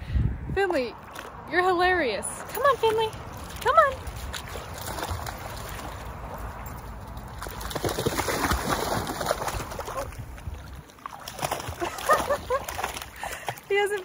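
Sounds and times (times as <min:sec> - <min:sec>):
dog splashing through water: 0:02.4 - 0:14.0.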